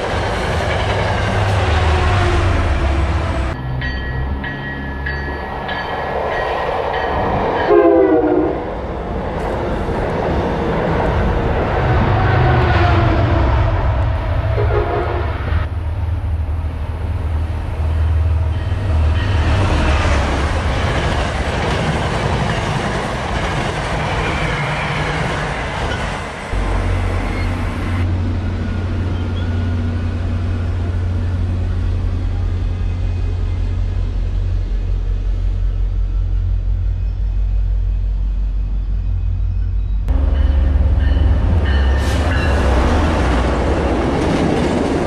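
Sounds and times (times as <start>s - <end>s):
train coaches rushing over rails: 0.0s - 15.9s, 16.5s - 38.0s, 39.0s - 45.0s
diesel locomotive drone: 0.0s - 45.0s
train horn blast: 7.7s - 8.7s, 13.4s - 15.7s.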